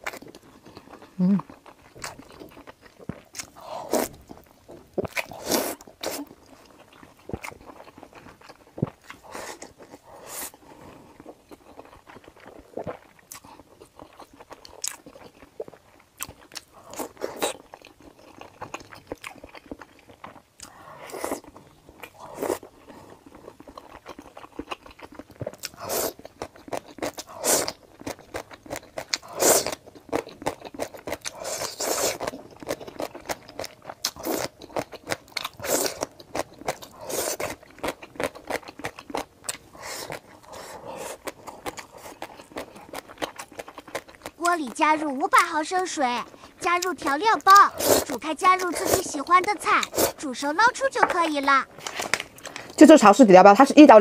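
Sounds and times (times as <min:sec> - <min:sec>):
chewing and crunching: 0:00.0 - 0:53.2
noodle slurps: 0:47.5 - 0:50.2.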